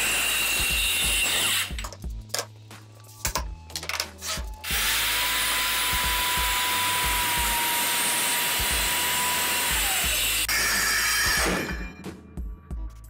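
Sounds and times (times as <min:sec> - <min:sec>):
knocks and clicks: 0:01.7 - 0:04.5.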